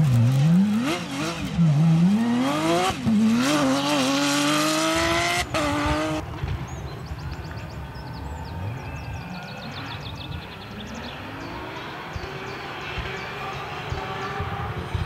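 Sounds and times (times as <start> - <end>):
rally car engine revving hard: 0.0 - 6.2.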